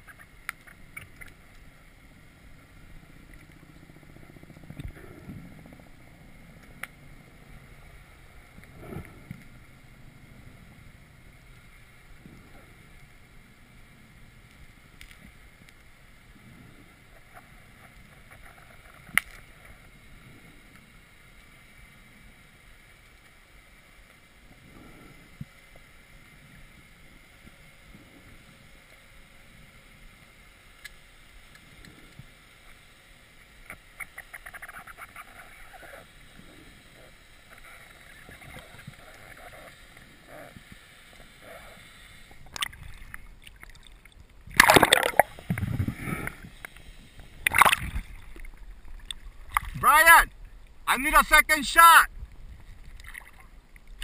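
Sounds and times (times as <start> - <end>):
fine crackling ticks: 0.0 - 1.8, 3.2 - 7.0, 14.4 - 16.1, 17.1 - 20.0, 30.6 - 44.4
muffled underwater ambience: 0.0 - 51.4
water splashing: 42.3 - 46.5, 47.2 - 50.4, 52.6 - 54.0.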